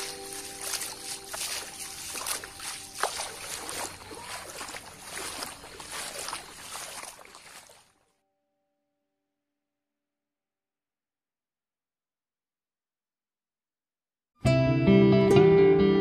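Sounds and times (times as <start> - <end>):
water sloshing and trickling: 0.0 - 8.0.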